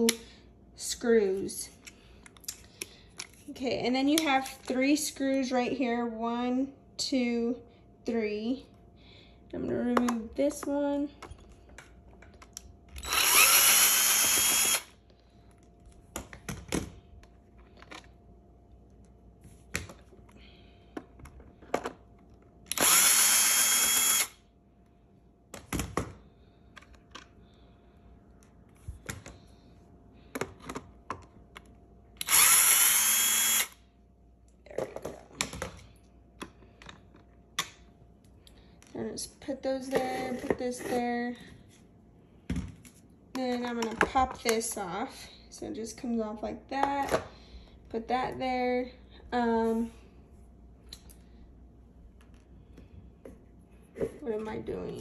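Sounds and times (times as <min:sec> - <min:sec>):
drill motor whine: 0:13.0 - 0:15.0, 0:22.7 - 0:24.4, 0:32.2 - 0:33.8.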